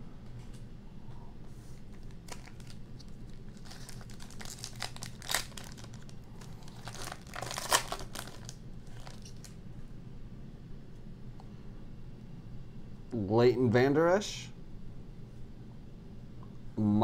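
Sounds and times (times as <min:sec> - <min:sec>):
plastic wrapper tearing and crinkling: 0:02.0 - 0:09.6.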